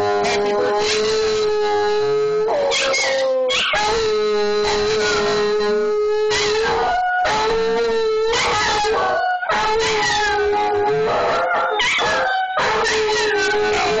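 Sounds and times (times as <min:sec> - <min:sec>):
dogs howling: 0:00.0 - 0:05.3, 0:06.4 - 0:14.0.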